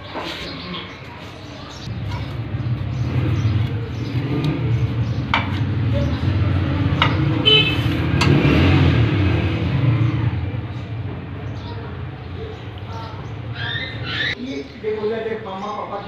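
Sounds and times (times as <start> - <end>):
low engine rumble: 1.8 - 14.4.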